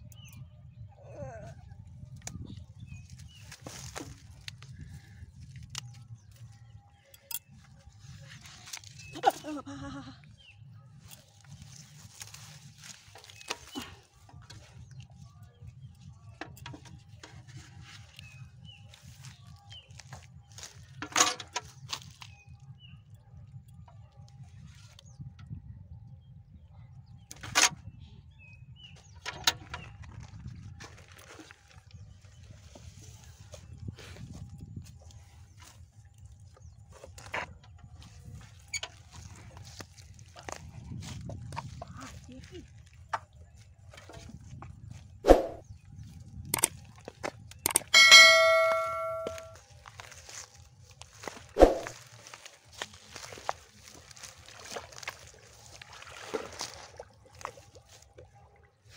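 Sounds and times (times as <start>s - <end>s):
quick clicks: 46.6s - 46.8s, 47.6s - 47.9s
bird chirps: 47.6s - 49.6s
bright bell ding: 47.9s - 49.6s.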